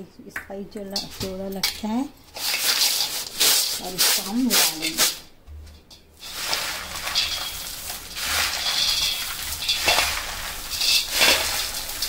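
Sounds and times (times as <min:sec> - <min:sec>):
crisp snack being stirred and tossed: 0:02.3 - 0:05.2, 0:06.2 - 0:12.0.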